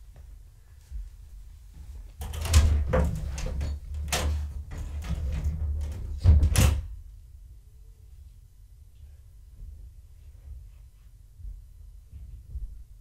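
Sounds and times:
bumps knocks and rubbing: 2.2s - 6.9s.

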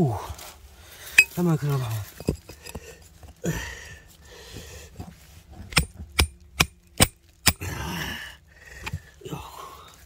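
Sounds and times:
hammer striking stone: 5.7s - 7.6s.

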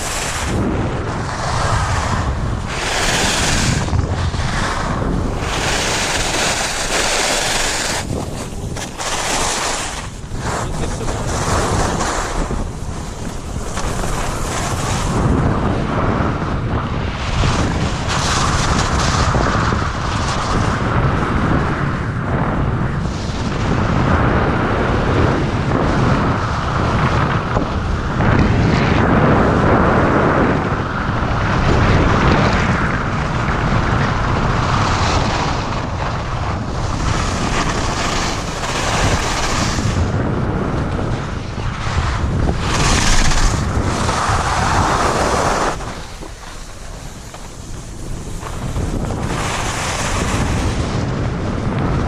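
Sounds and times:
skis sliding on packed snow: 0.0s - 16.3s, 17.1s - 22.0s, 33.7s - 52.0s
wind rushing over microphone: 0.0s - 52.0s.

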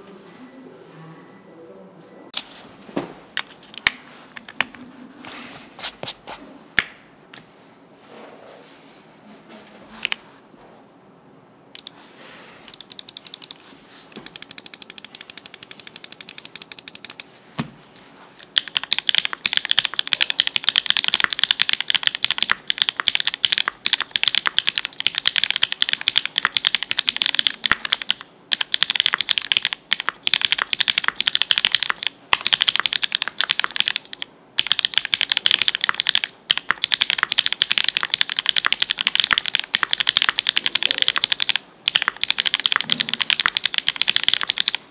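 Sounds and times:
mechanical keyboard typing: 11.8s - 12.0s, 12.7s - 13.6s, 14.2s - 17.3s, 18.4s - 44.9s.

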